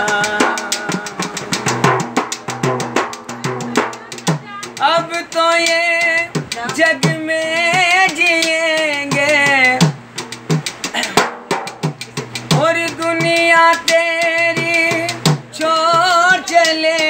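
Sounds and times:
man singing long wavering notes: 0:00.0 - 0:01.8, 0:04.7 - 0:09.8, 0:12.6 - 0:17.0
fast hand drumming on metal drum: 0:00.0 - 0:17.0.

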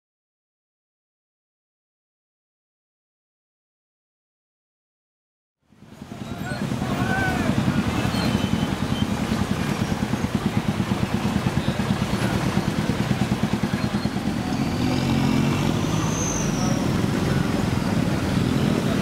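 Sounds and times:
vehicle engines idling: 0:05.7 - 0:19.0
pickup truck passing: 0:05.8 - 0:19.0.

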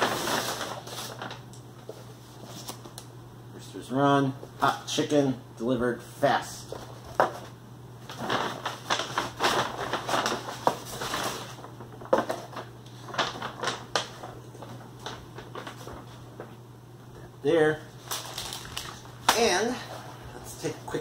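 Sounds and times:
paper bag rustling and crinkling: 0:00.0 - 0:03.0, 0:06.6 - 0:16.6, 0:17.9 - 0:21.0.

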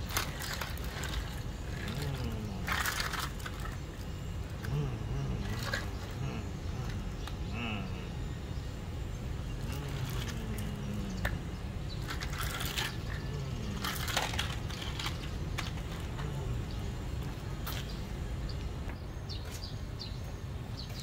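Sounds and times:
gravel stones clicking: 0:00.0 - 0:04.8, 0:09.6 - 0:19.7
low background hum: 0:00.0 - 0:21.0.

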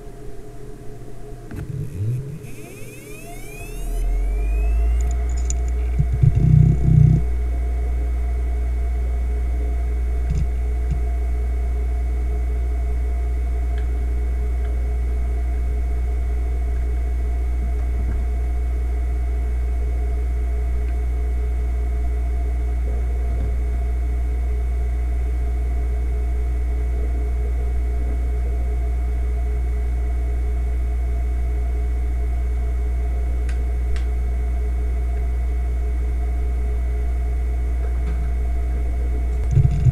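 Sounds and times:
thin high whine: 0:00.0 - 0:13.4
hard drive spindle hum: 0:00.0 - 0:39.9
hard drive clunks and clicks: 0:01.4 - 0:07.5, 0:10.2 - 0:11.1, 0:37.8 - 0:39.9.

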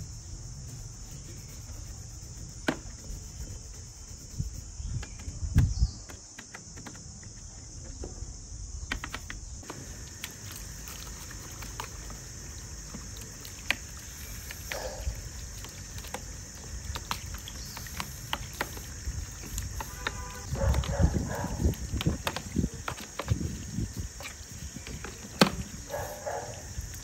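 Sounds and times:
high insect drone: 0:00.0 - 0:27.0
water from garden hose: 0:09.6 - 0:27.0.

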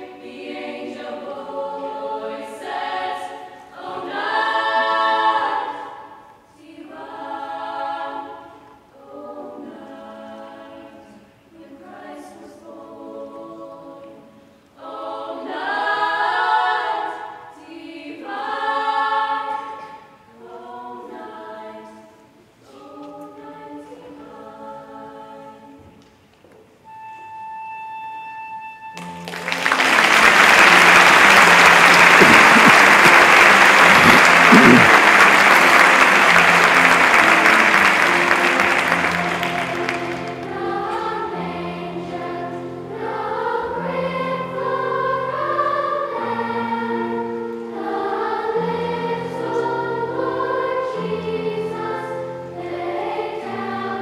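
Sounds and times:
girls' choir singing in harmony: 0:00.0 - 0:26.0, 0:29.2 - 0:54.0
applause: 0:29.0 - 0:40.5.

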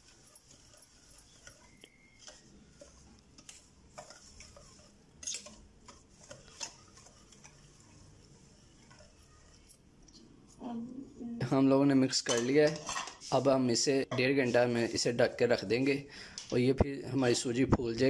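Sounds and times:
whisk scraping a bowl: 0:00.0 - 0:10.6.

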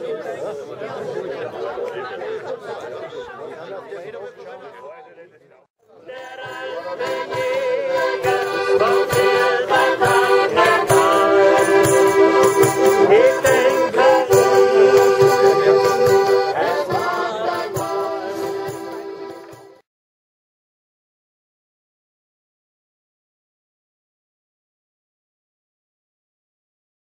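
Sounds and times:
accordion playing folk tune: 0:06.0 - 0:19.8.

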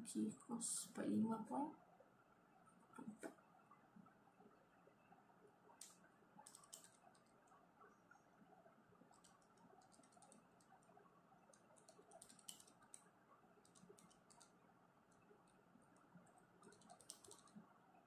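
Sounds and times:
calculator keys clicking: 0:06.4 - 0:07.3, 0:09.1 - 0:10.7, 0:11.5 - 0:13.0, 0:13.6 - 0:14.5, 0:16.6 - 0:17.5.

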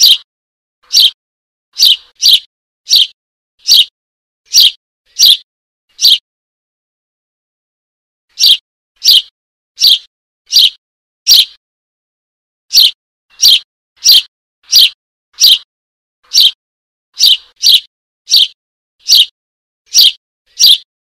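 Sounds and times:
bird chick begging chirps: 0:00.0 - 0:00.2, 0:00.8 - 0:01.2, 0:01.8 - 0:03.9, 0:04.5 - 0:06.2, 0:08.3 - 0:11.6, 0:12.7 - 0:15.7, 0:16.3 - 0:16.6, 0:17.2 - 0:19.3, 0:19.9 - 0:20.9.

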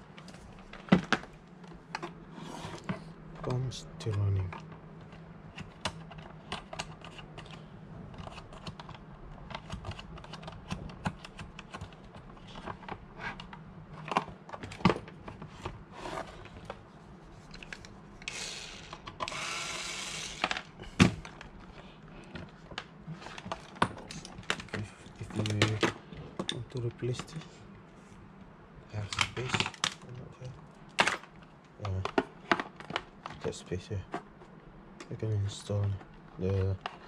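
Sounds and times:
faint pump hum: 0:00.0 - 0:37.0
hands clicking wires and connectors: 0:08.2 - 0:15.0.

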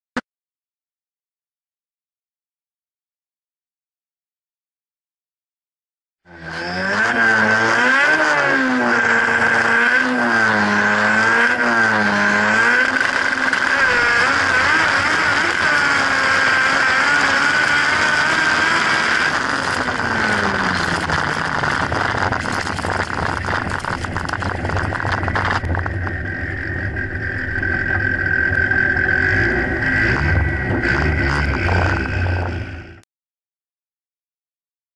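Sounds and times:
racing car engine revving: 0:06.3 - 0:33.0.

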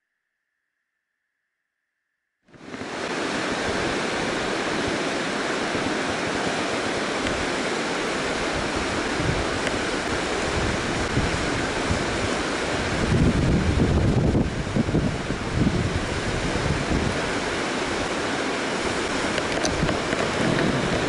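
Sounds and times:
river water rushing over rapids: 0:02.5 - 0:21.0
wind buffeting microphone: 0:02.6 - 0:21.0.

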